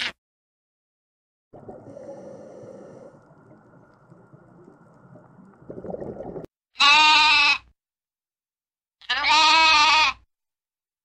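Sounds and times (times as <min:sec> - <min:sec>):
muffled underwater rush: 0:01.5 - 0:06.5
lamb bleating: 0:06.8 - 0:07.7, 0:09.0 - 0:10.2.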